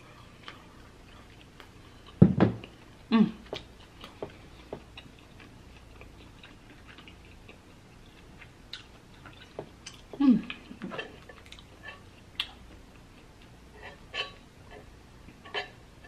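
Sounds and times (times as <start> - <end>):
person humming: 3.1 - 3.5, 10.2 - 10.6.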